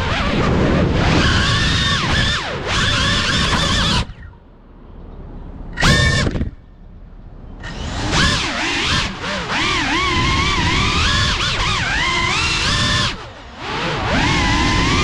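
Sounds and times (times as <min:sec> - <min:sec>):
drone motors whining: 0:00.0 - 0:04.6, 0:05.3 - 0:15.0.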